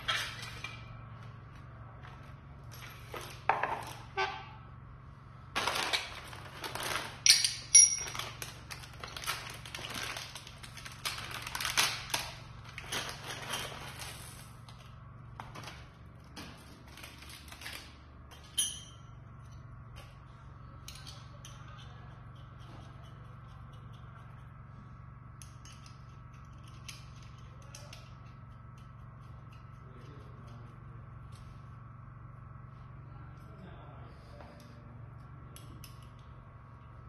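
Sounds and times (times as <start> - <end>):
steady low hum: 0.0 - 37.0
metal parts clicking and rustling: 5.6 - 14.9
metal clinks on tiled floor: 7.2 - 8.5, 18.3 - 19.2.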